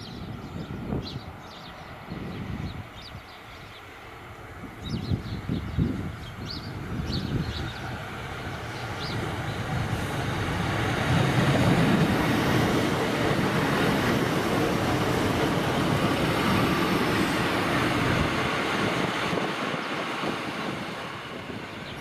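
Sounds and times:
diesel train engine: 3.4s - 22.0s
train wheels on rails: 5.9s - 22.0s.

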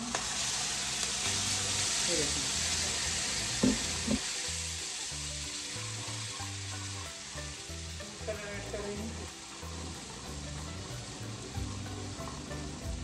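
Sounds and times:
food sizzling in a pan: 0.0s - 13.0s
background music with bass: 3.3s - 13.0s.

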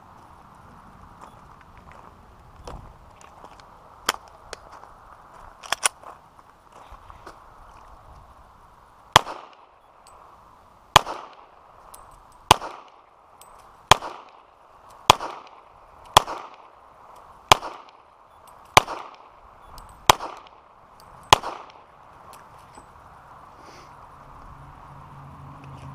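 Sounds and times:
gunshots with echo: 11.0s - 11.5s, 12.5s - 13.0s, 13.9s - 14.5s, 16.2s - 16.7s, 18.8s - 19.3s, 20.0s - 20.6s, 21.3s - 21.9s.

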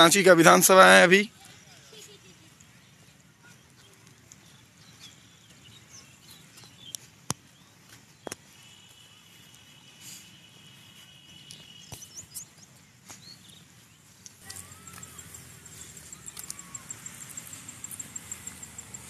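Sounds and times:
high bird chirps: 11.0s - 13.8s, 14.5s - 19.0s
thin steady whine: 14.6s - 19.0s.

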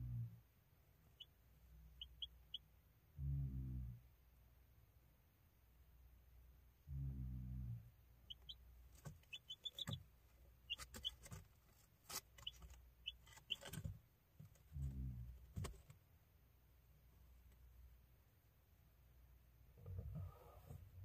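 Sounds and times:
chick peeping: 1.1s - 1.3s, 1.9s - 2.6s, 8.3s - 10.0s, 10.6s - 11.4s, 12.1s - 13.9s.

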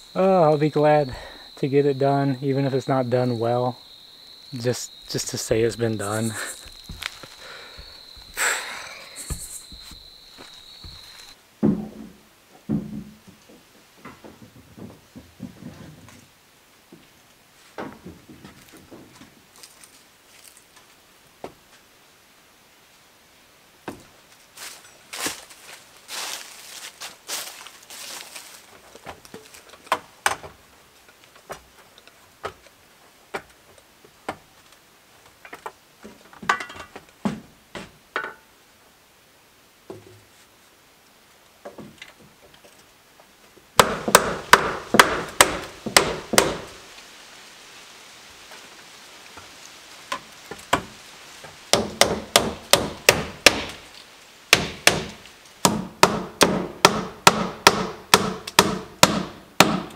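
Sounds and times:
hammer driving nails into wood: 43.8s - 46.7s, 51.7s - 53.8s, 54.5s - 59.9s.

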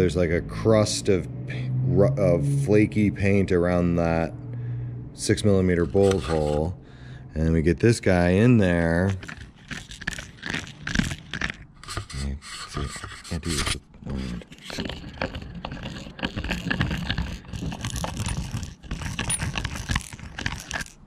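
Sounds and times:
deburring blade scraping metal: 5.7s - 6.8s.

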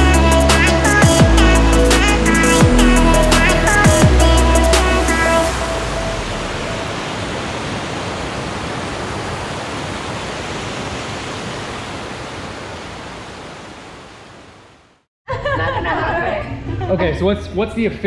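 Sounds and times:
stream rushing over boulders: 5.1s - 15.1s.

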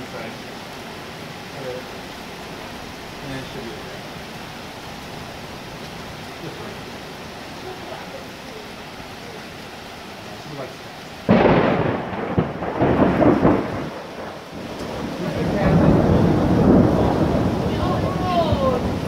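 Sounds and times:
steady rain: 0.0s - 19.0s
loud thunderclap rolling: 11.3s - 19.0s.

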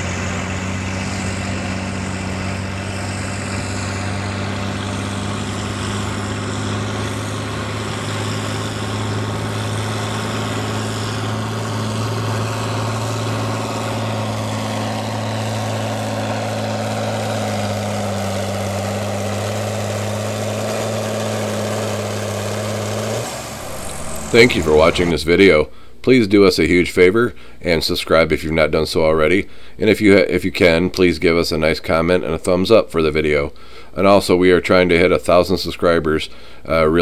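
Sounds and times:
tractor diesel engine under load: 0.0s - 26.1s.

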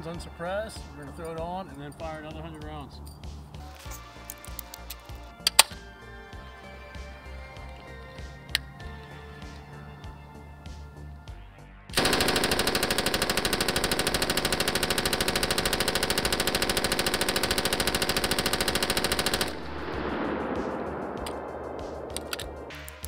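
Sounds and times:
background music: 0.0s - 23.0s
machine gun firing burst: 12.0s - 22.7s.

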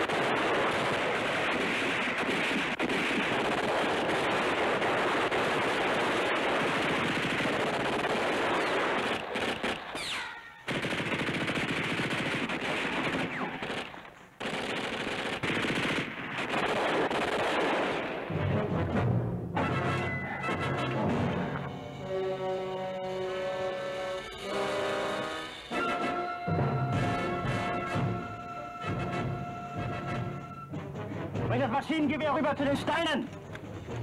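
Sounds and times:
heavy automatic gunfire: 0.0s - 10.1s, 10.7s - 18.2s.

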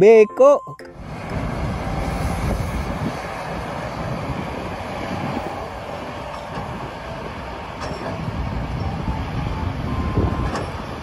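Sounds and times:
excavator rumble: 0.6s - 11.0s
faint metallic clanks: 7.8s - 8.2s.

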